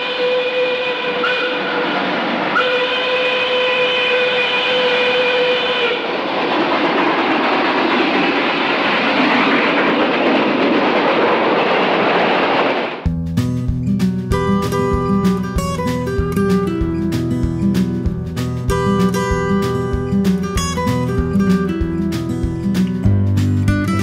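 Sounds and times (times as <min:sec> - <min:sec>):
steam locomotive whistle: 0:00.0 - 0:06.2
steam hissing: 0:00.0 - 0:12.8
locomotive rushing past: 0:00.0 - 0:24.0
guitar music: 0:13.1 - 0:24.0.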